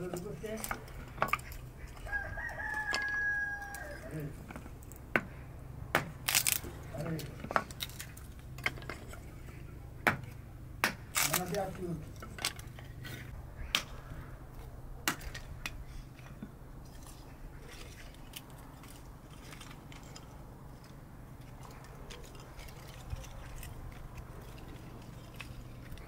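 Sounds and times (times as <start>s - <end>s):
low steady hum: 0.0s - 26.0s
wood pieces clicking and knocking: 0.1s - 1.6s, 6.3s - 9.2s
hatchet chopping wood: 5.1s - 6.7s, 10.0s - 11.4s.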